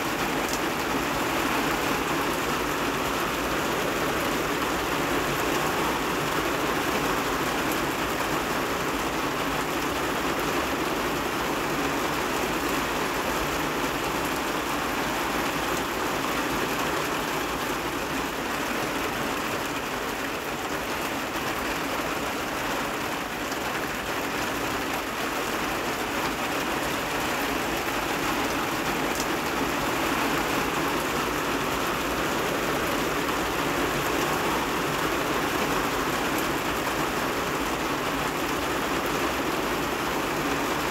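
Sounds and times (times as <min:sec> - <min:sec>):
heavy rain on rooftop: 0:00.0 - 0:40.9.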